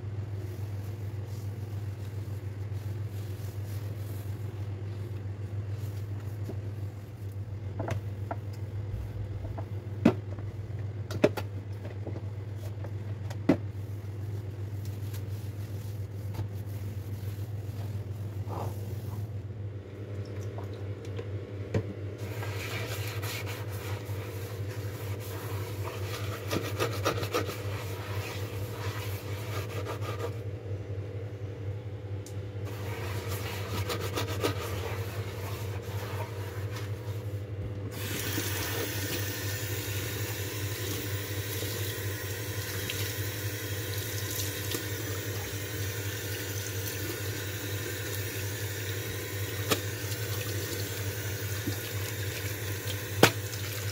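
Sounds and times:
sponge scrubbing a sink: 0.0s - 7.4s, 13.7s - 19.4s, 22.2s - 30.5s, 32.6s - 53.9s
cloth wiping a sink: 0.0s - 10.7s, 12.1s - 19.5s, 22.2s - 30.5s, 32.6s - 53.9s
steady low hum: 0.0s - 53.9s
tap water running into sink: 38.0s - 53.9s.

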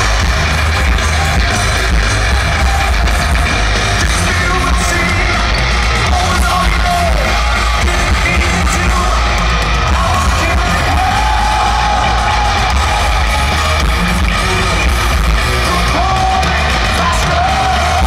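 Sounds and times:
metal band playing live: 0.0s - 18.0s
stadium crowd: 0.0s - 18.0s.

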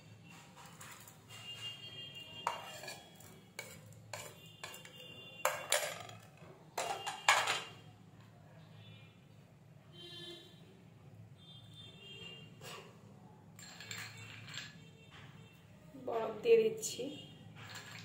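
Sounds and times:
spoon scraping and clinking dishes: 2.4s - 7.8s, 13.6s - 14.9s, 17.6s - 18.0s.

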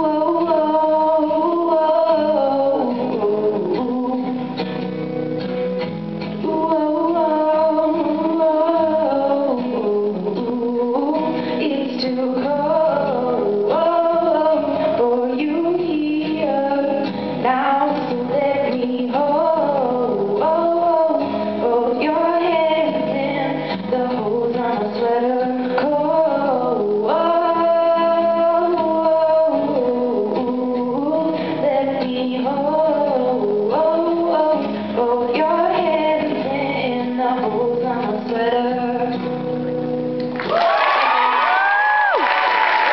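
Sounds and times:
woman singing: 0.0s - 4.8s, 6.3s - 39.6s
acoustic guitar: 0.0s - 42.9s
audience applause and cheering: 40.4s - 42.9s.

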